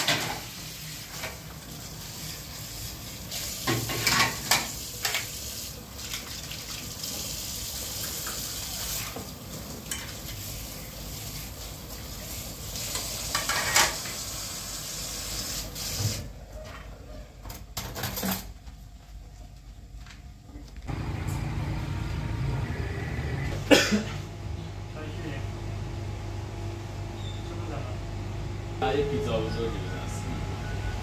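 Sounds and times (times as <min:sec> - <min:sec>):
plates and bowls clinking: 0:03.7 - 0:05.2.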